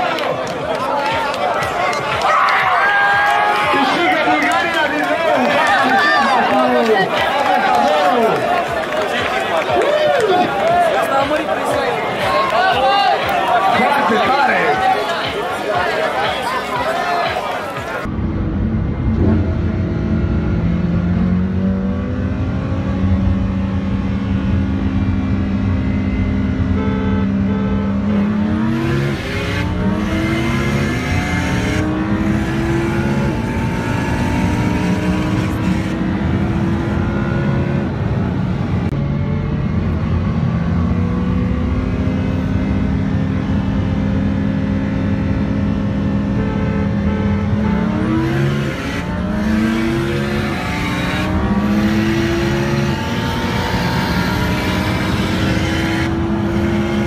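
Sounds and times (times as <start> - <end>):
car engines accelerating with gear changes: 3.2 - 57.0.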